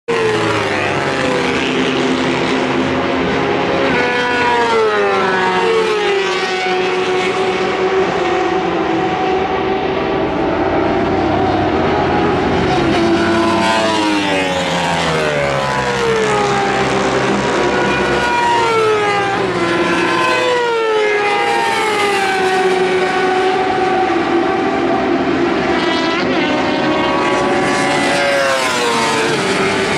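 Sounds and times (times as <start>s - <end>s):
motorcycles passing at speed: 0.1s - 29.9s.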